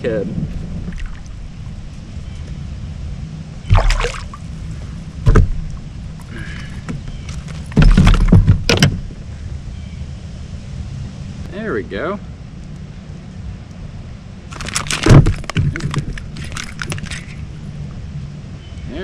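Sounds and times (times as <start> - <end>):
steady low rumble: 0.0 - 19.0
handling noise in plastic kayak: 3.7 - 9.2, 14.5 - 17.6
loud sudden bumps: 5.2 - 5.8, 6.8 - 9.3, 14.6 - 17.1.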